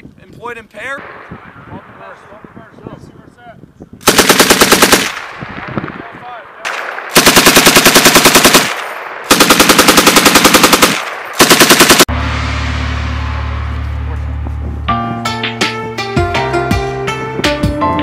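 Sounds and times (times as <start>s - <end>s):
machine gun bursts: 4.0s - 5.2s, 6.7s - 12.1s.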